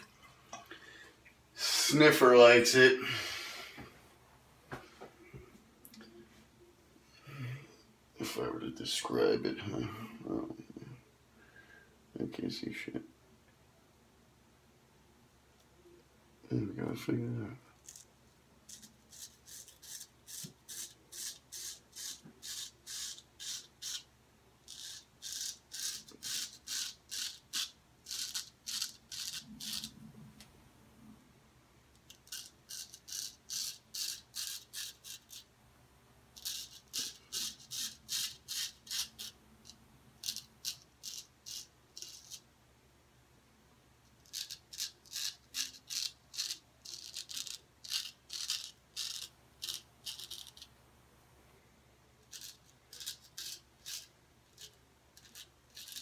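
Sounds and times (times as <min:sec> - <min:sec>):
straight razor scraping stubble: 0:18.7 - 0:24.1, 0:24.7 - 0:30.0, 0:32.0 - 0:35.5, 0:36.4 - 0:42.4, 0:44.2 - 0:50.7, 0:52.2 - 0:56.0.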